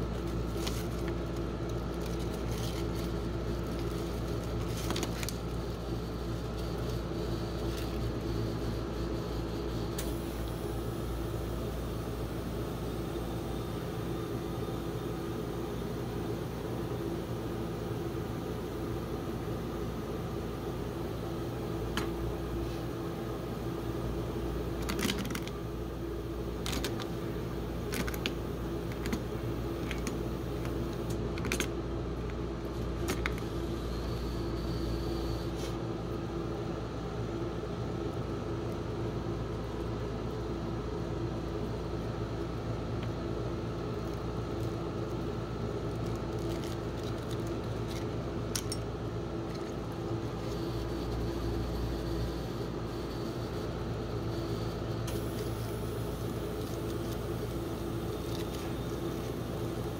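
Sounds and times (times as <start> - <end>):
foil wrapper crinkling: 0.0 - 5.6, 45.8 - 48.1
refrigeration unit humming: 0.0 - 59.9.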